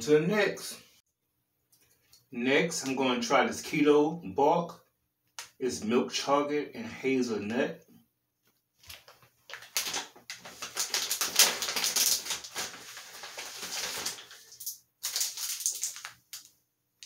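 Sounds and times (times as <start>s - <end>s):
plastic packaging crinkling: 8.8s - 16.6s.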